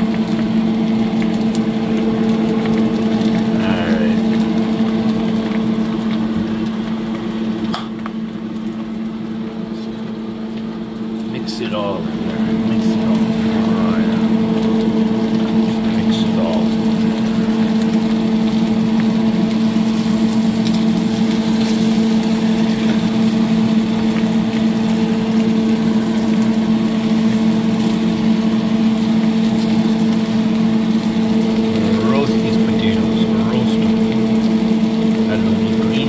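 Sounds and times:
motor humming: 0:11.3 - 0:36.0.

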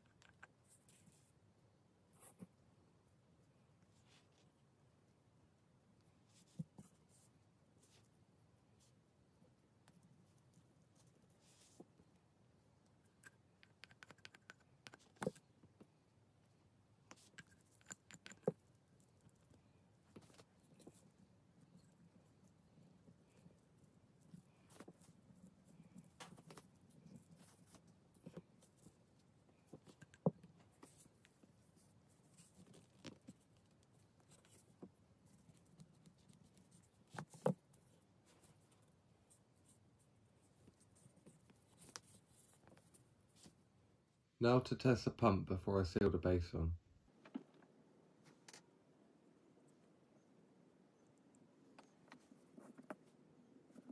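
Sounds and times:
small metal parts ticking and rubbing: 0:17.2 - 0:19.5.

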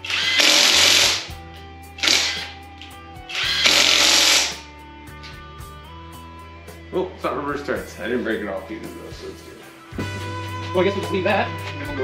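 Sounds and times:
power tool bursts: 0:00.0 - 0:01.3, 0:02.0 - 0:02.6, 0:03.3 - 0:04.6
background music: 0:00.0 - 0:12.0.

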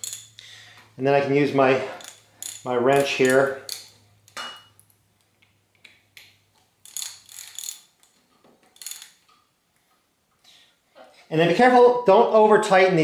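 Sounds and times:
wrench metallic clicking: 0:00.0 - 0:00.5, 0:01.9 - 0:04.0, 0:06.8 - 0:08.2, 0:08.8 - 0:09.3.

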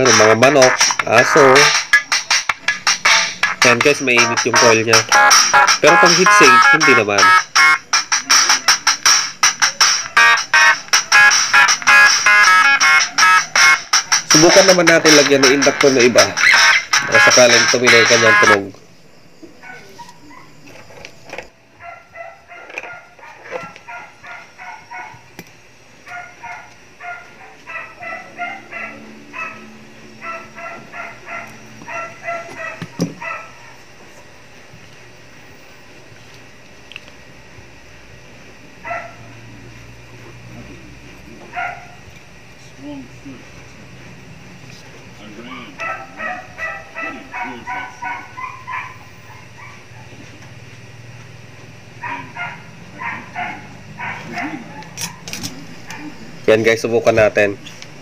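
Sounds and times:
steady low hum: 0:00.0 - 0:58.0
dog yapping: 0:21.8 - 0:25.2, 0:26.1 - 0:33.8, 0:38.8 - 0:39.3, 0:41.5 - 0:42.0, 0:45.4 - 0:50.2, 0:52.0 - 0:56.2.

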